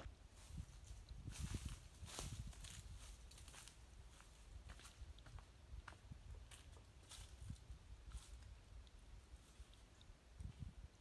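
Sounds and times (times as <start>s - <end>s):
wind rumble on microphone: 0.0s - 11.0s
footsteps on dry leaves and gravel: 0.3s - 9.8s.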